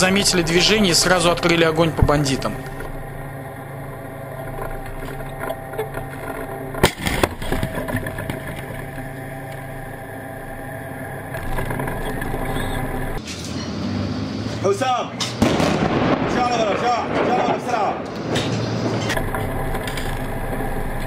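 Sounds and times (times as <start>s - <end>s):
tank engine running: 0.0s - 21.0s
tank gun firing blast: 15.4s - 19.5s.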